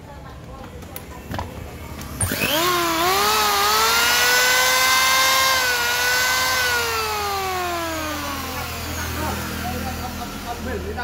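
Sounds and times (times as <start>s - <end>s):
electric hand planer motor whine: 2.2s - 10.8s.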